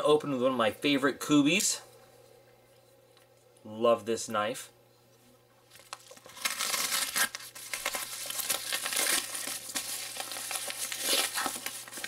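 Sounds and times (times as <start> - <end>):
paper crinkling and rustling: 5.7 - 12.0.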